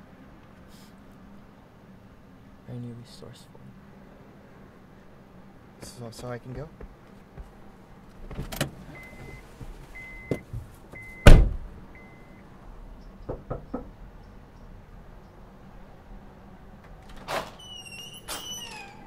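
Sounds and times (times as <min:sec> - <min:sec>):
car door unlatching: 0:08.1 - 0:11.7
car door slamming shut: 0:08.2 - 0:09.4, 0:10.2 - 0:11.7
door-open warning chime beeping: 0:09.0 - 0:09.4, 0:10.0 - 0:11.4, 0:12.0 - 0:12.4
knocks on a wooden door: 0:13.3 - 0:13.9.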